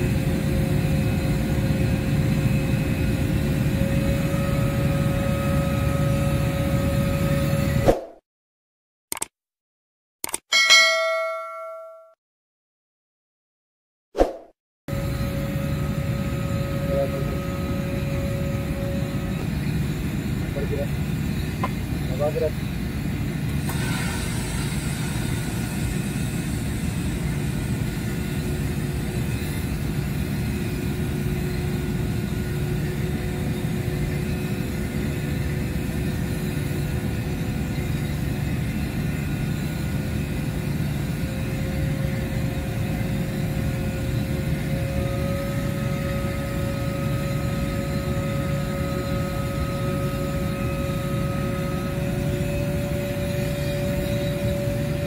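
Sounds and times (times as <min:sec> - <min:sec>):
engine drone: 0:00.0 - 0:07.9, 0:14.9 - 0:55.0
faint whining tones: 0:14.9 - 0:22.9, 0:23.8 - 0:55.0.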